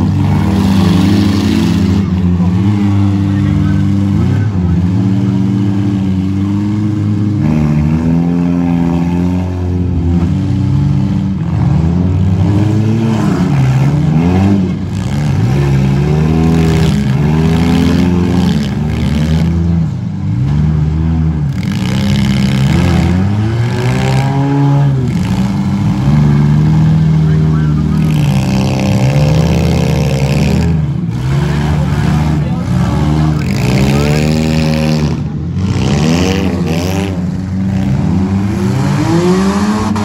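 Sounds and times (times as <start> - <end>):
car engines revving: 0.0 - 40.0.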